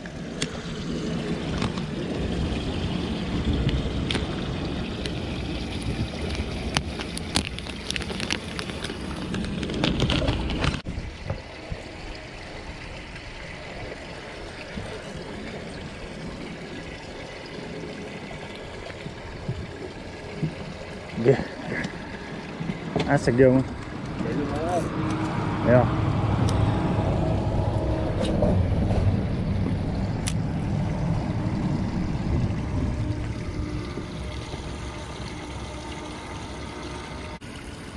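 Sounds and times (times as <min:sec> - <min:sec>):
water washing against boat: 0:00.0 - 0:37.9
low rumble: 0:22.0 - 0:37.4.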